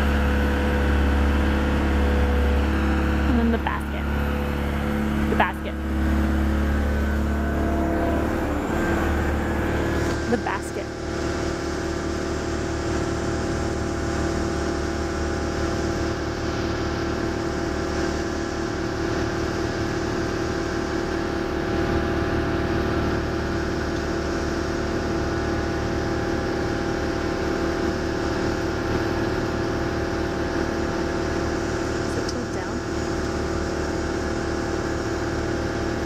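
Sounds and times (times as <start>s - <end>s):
boom lift engine humming: 0.0s - 36.0s.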